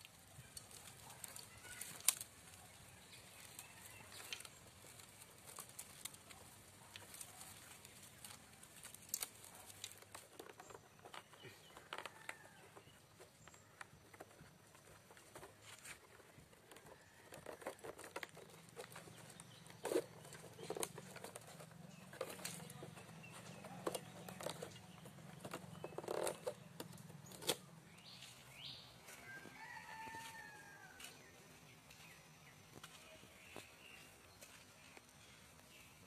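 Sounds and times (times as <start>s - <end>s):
bamboo strips clicking and rustling: 0.0s - 28.4s.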